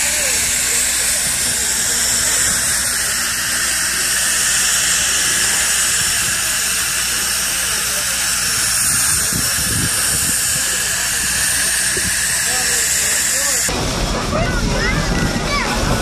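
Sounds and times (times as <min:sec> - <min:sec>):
steam hissing: 0:00.0 - 0:16.0.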